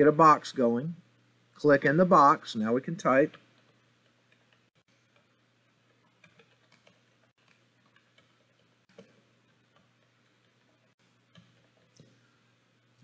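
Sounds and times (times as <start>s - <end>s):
faint keyboard typing: 3.2s - 12.2s.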